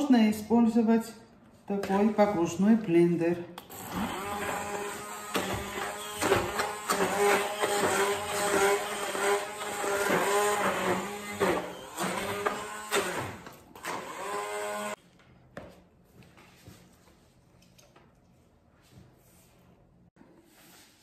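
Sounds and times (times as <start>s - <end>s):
hand blender running: 3.7s - 15.0s.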